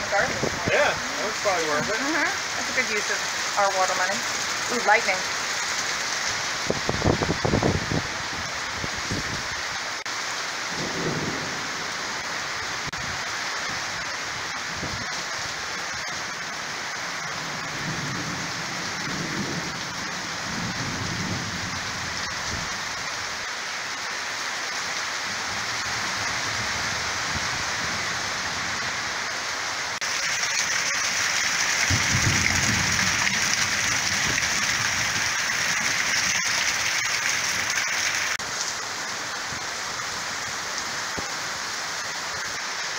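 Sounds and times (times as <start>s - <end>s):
heavy rain pouring: 0.0s - 42.9s
thunder rolling: 10.7s - 12.0s, 31.6s - 35.9s.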